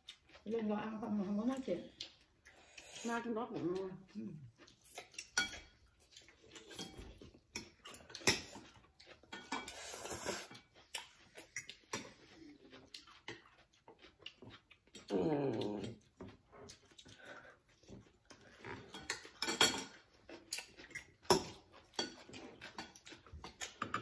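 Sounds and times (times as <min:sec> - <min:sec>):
chewing: 0:00.0 - 0:24.0
slurping noodles: 0:09.6 - 0:10.6.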